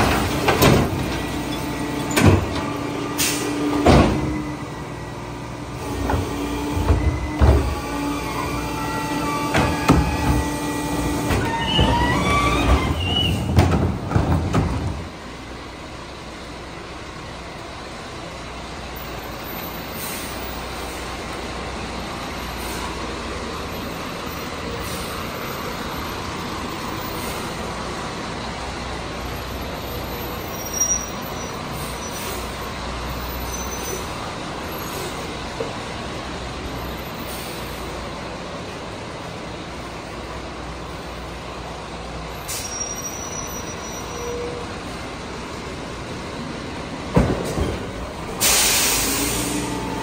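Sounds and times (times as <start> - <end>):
garbage truck engine running: 0.0 - 42.7
road noise: 0.0 - 50.0
high squeak: 42.6 - 44.6.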